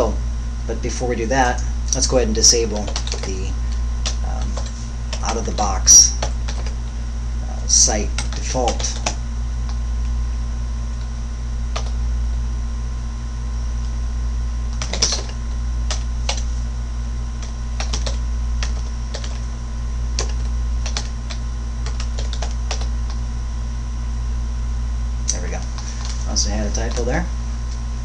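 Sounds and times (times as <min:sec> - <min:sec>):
low electrical hum: 0:00.0 - 0:28.0
keyboard typing: 0:02.6 - 0:06.8, 0:08.1 - 0:09.8, 0:11.7 - 0:12.0, 0:14.7 - 0:16.5, 0:17.4 - 0:19.5, 0:20.2 - 0:23.2.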